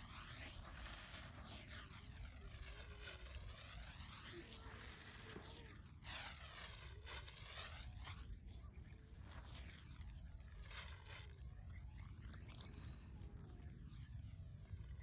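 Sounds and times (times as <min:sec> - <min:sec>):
plastic bag crinkling: 0:00.0 - 0:13.6.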